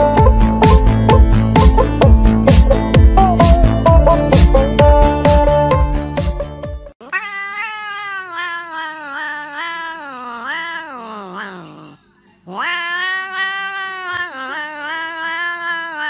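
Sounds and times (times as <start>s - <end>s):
cat yowling: 7.0s - 16.0s.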